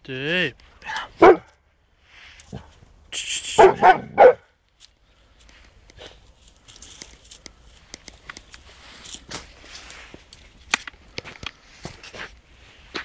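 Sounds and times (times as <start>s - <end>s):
footsteps in dry grass and leaves: 4.7s - 12.9s.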